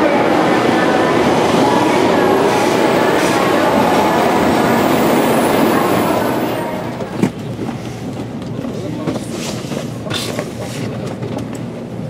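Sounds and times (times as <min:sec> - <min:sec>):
train interior rumble and hiss: 0:00.0 - 0:12.0.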